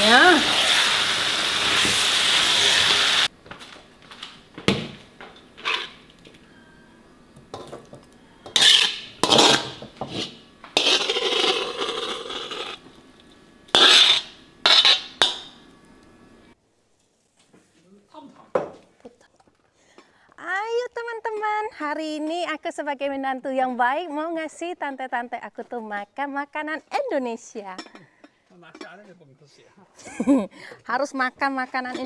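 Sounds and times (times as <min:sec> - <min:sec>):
food sizzling in a wok: 0:00.0 - 0:03.3, 0:08.4 - 0:12.9, 0:13.7 - 0:15.6.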